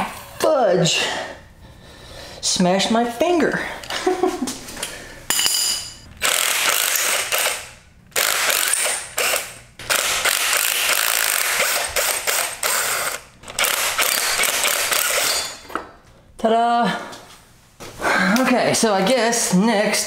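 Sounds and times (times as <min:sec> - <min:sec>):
cordless drill running: 0:06.2 - 0:15.6.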